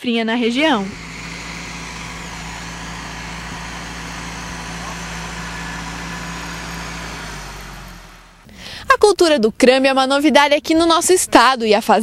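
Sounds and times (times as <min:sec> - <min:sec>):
tractor diesel engine running: 0:00.4 - 0:08.9.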